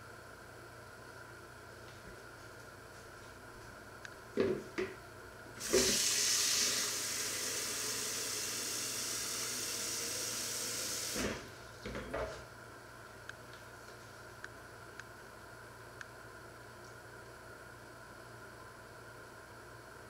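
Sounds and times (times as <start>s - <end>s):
tap water running into jug: 5.6s - 11.3s.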